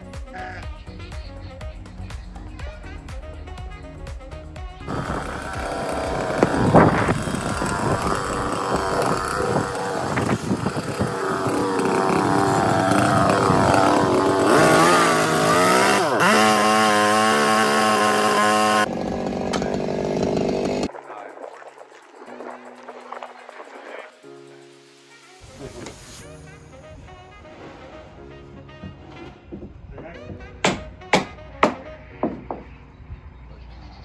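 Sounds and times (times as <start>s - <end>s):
chainsaw cutting wood: 4.9s - 20.9s.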